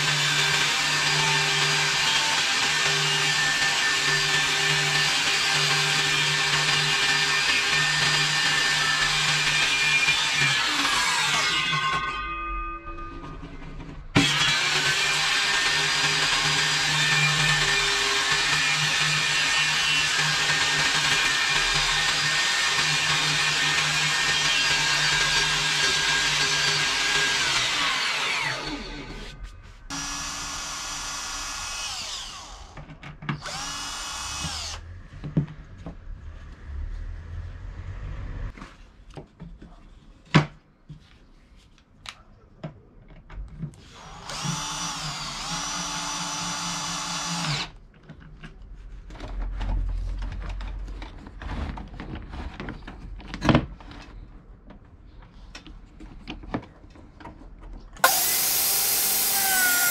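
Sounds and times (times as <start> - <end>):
drill driving screws into wood: 0.0 - 11.7, 14.2 - 29.3, 29.9 - 34.8, 43.8 - 47.8, 58.0 - 59.9.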